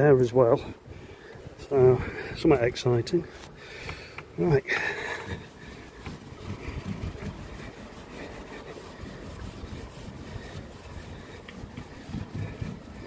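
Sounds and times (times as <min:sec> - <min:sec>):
wire wool scrubbing glass: 0:04.3 - 0:13.0.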